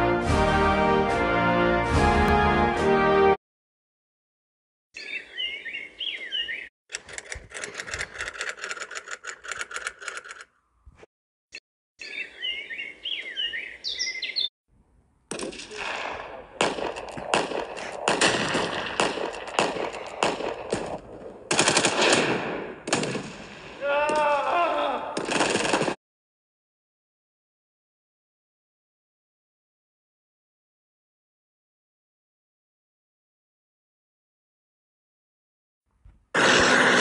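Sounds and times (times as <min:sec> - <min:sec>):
birds chirping: 0:05.0 - 0:06.7, 0:12.0 - 0:14.5
automatic gunfire: 0:15.3 - 0:23.4, 0:25.2 - 0:26.0.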